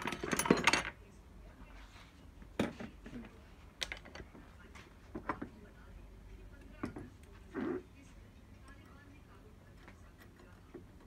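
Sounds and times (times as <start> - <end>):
tools and metal parts clattering: 0.0 - 1.0.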